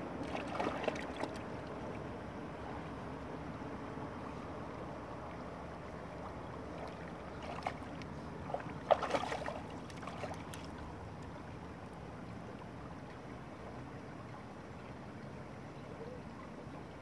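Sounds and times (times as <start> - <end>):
dog splashing in water: 0.2 - 1.3, 7.4 - 10.7.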